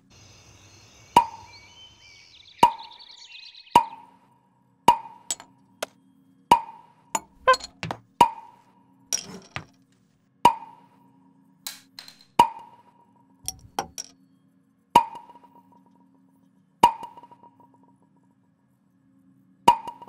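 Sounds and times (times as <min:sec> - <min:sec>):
light clinks and taps: 0:07.2 - 0:08.0, 0:13.5 - 0:14.1
wooden temple block knocks: 0:07.2 - 0:08.1, 0:09.2 - 0:09.7.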